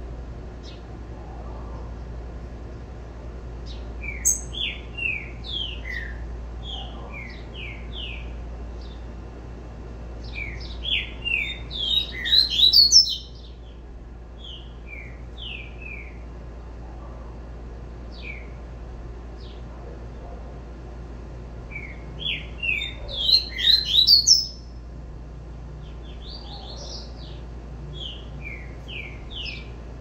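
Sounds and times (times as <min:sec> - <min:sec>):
bird singing whistled notes: 0:04.0 - 0:06.2, 0:10.3 - 0:13.5, 0:21.7 - 0:24.7.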